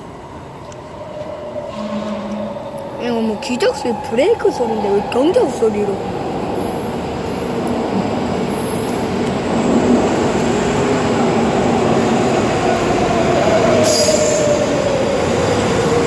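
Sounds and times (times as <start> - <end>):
train wheels on rail: 0.0 - 16.0
train whine falling in pitch: 1.5 - 3.1.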